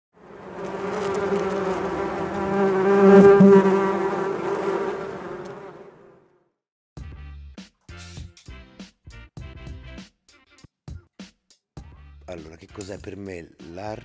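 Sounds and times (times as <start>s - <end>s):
bee buzzing: 0.2s - 6.3s.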